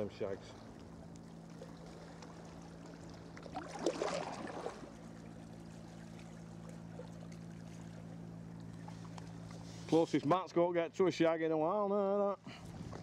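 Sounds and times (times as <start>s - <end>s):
water lapping against hull: 0.0s - 11.0s, 11.7s - 13.0s
water splash: 3.4s - 5.0s.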